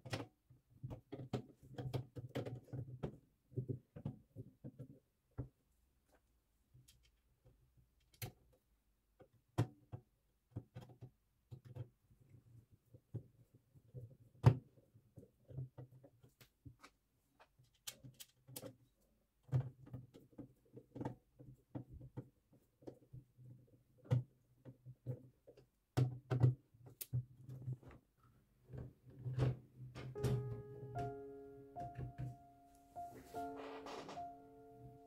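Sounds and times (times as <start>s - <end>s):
soft background music: 30.1s - 35.0s.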